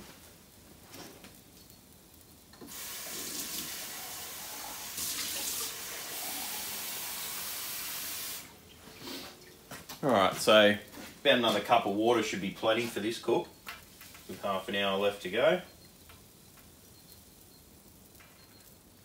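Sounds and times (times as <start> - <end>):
tap water running into cup: 2.6 - 8.5.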